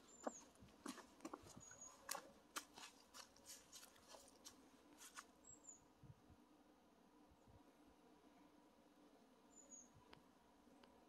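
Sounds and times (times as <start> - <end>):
footsteps crunching dry leaves: 1.9 - 5.3.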